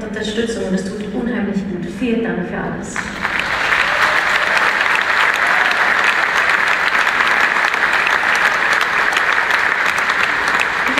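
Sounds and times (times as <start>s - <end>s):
large audience applauding: 3.0s - 10.9s.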